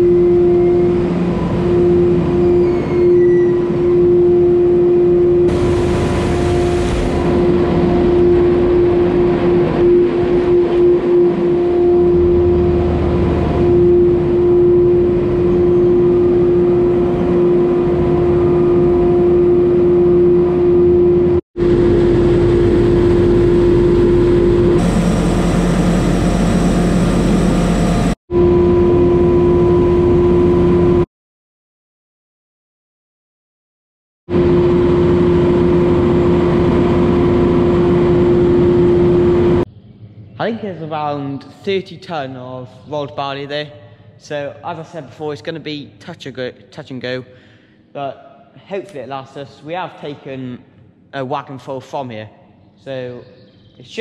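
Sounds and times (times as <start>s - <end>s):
machine hum: 0.0s - 31.1s, 34.3s - 42.2s.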